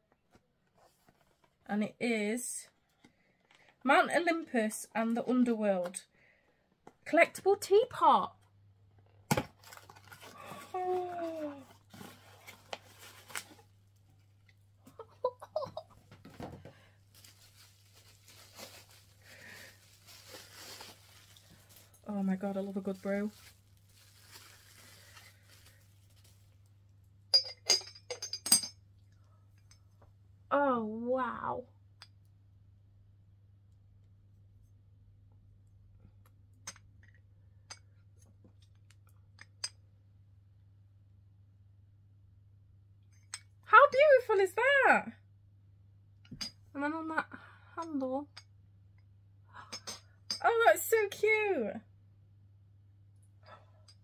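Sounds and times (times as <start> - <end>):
plastic wrapping crinkling: 9.6 - 13.8, 16.8 - 26.6.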